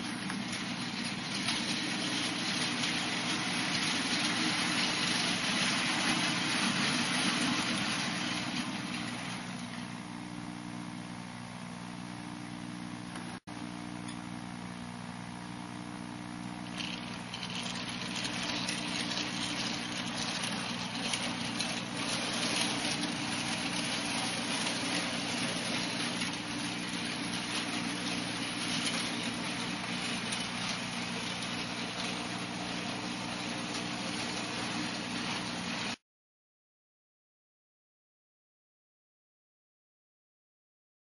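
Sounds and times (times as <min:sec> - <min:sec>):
model train wheels on track: 0:00.0 - 0:10.4, 0:16.5 - 0:36.0
electric motor hum: 0:00.0 - 0:36.0.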